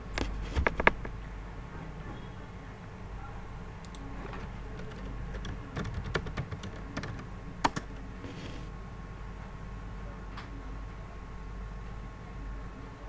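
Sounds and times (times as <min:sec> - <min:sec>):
steady low hum: 0:00.0 - 0:13.0
keyboard key clicks: 0:00.1 - 0:01.1.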